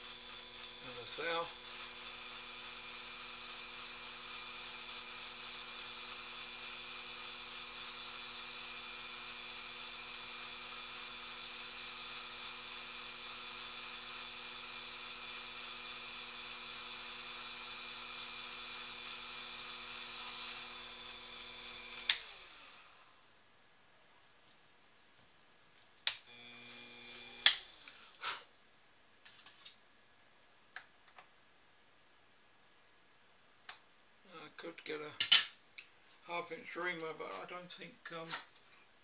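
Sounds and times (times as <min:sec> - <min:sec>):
lathe motor whining: 0:00.0 - 0:23.3.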